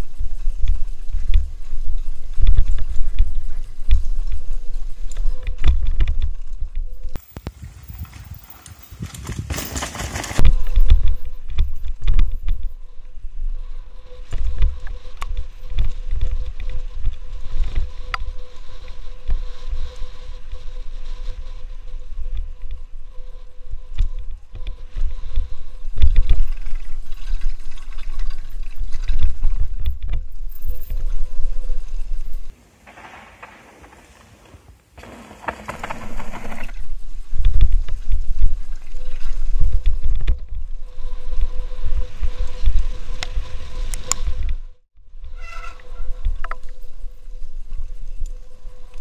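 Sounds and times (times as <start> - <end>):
wind buffeting microphone: 0.0 - 13.6
bike rattling and thumping: 7.2 - 12.6, 32.8 - 38.0.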